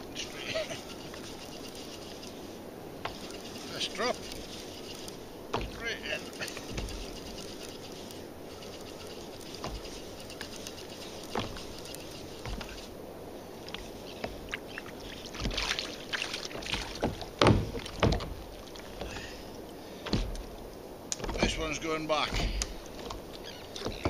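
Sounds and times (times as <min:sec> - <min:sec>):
steady low hiss: 0:00.0 - 0:24.0
fish thumping: 0:05.5 - 0:05.8, 0:13.7 - 0:21.6, 0:22.2 - 0:24.0.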